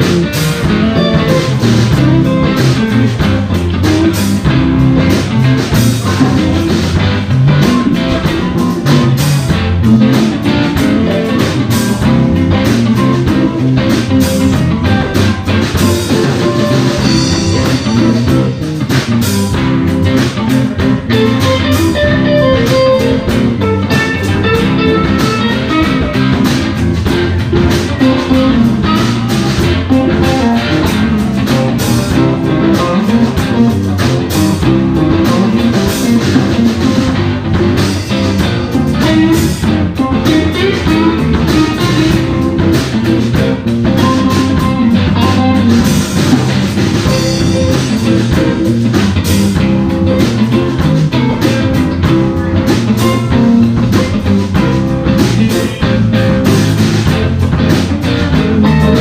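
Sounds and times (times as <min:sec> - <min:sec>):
live blues band playing: 0:00.0 - 0:59.0.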